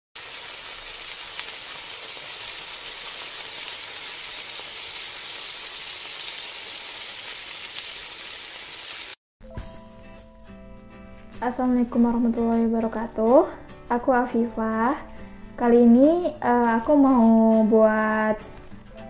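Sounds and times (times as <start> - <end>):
food sizzling in hot oil: 0.2 - 9.2.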